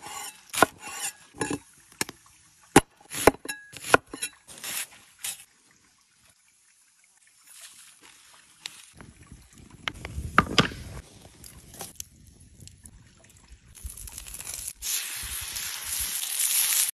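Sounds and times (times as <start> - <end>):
fish sizzling on hot stone: 13.8 - 17.0.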